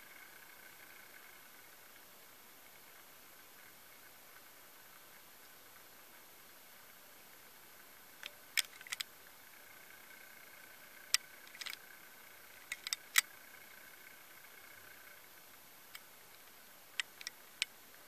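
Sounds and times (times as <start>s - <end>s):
faint steady hiss: 0.0s - 18.0s
sharp clicks and taps: 17.0s - 17.7s.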